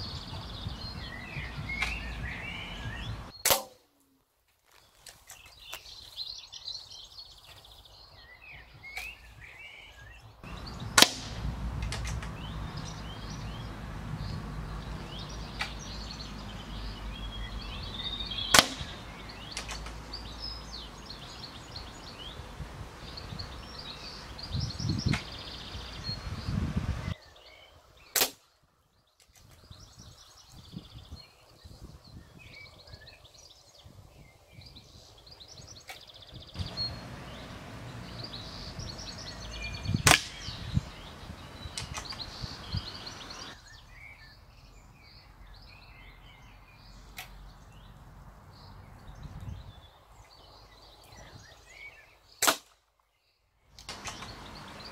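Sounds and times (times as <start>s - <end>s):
birds chirping: 0.0s - 3.6s, 4.6s - 54.9s
air rifle shots cracking: 3.4s - 3.8s, 10.9s - 12.3s, 18.5s - 20.0s, 28.2s - 28.4s, 40.0s - 40.6s, 52.4s - 52.8s.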